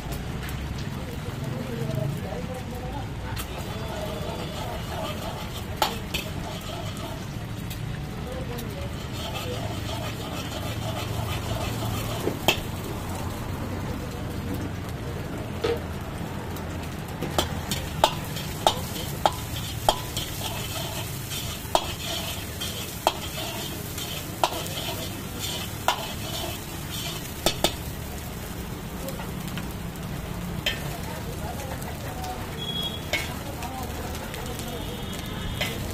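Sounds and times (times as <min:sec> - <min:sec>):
eggs sizzling in a wok: 0:00.0 - 0:35.9
ladle scraping wok: 0:03.3 - 0:08.0, 0:08.6 - 0:13.5, 0:17.2 - 0:28.5, 0:29.1 - 0:34.6, 0:35.2 - 0:35.9
ladle clinking against wok: 0:03.6 - 0:07.3, 0:08.9 - 0:12.8, 0:17.3 - 0:27.9, 0:30.6 - 0:31.0, 0:32.6 - 0:33.5, 0:35.6 - 0:35.9.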